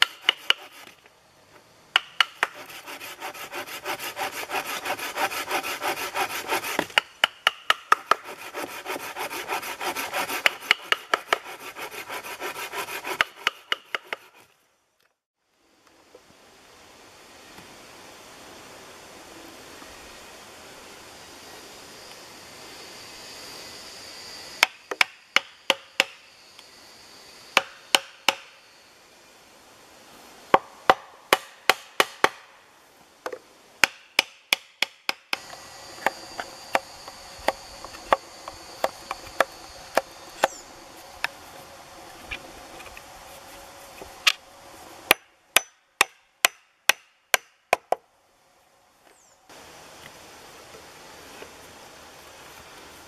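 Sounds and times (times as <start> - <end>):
insect buzz: 0.0 - 14.8, 15.4 - 33.8, 35.2 - 45.5, 48.2 - 53.0
wooden stake knocking: 2.0 - 2.6.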